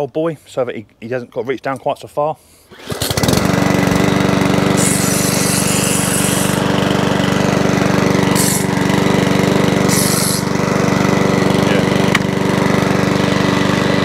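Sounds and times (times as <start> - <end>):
lawnmower engine running: 2.7 - 14.0
high hiss bursts: 4.8 - 6.7, 8.3 - 8.7, 9.9 - 10.5.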